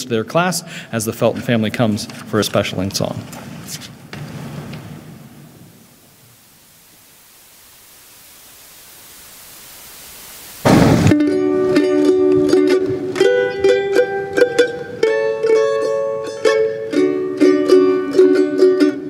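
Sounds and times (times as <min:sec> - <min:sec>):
faint room hiss: 0:00.0 - 0:19.0
short rush of noise: 0:03.6 - 0:11.4
mandolin picking a melody: 0:11.1 - 0:19.0.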